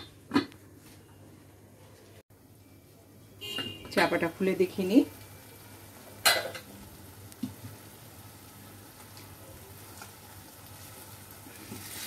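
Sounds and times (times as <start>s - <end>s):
eggs sizzling in a pan: 4.0s - 12.0s.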